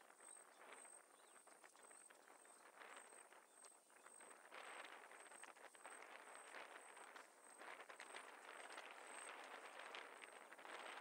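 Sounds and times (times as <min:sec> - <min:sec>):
soft rustling and crackles: 0:00.0 - 0:11.0.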